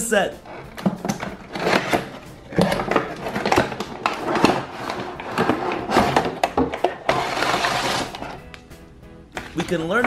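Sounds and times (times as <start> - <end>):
cardboard and paper rustling: 0.5 - 8.4.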